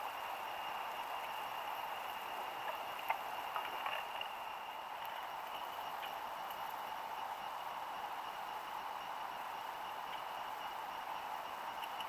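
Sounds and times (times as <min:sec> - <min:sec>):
outdoor background hiss: 0:00.0 - 0:12.0
faint small clicks: 0:11.8 - 0:12.0.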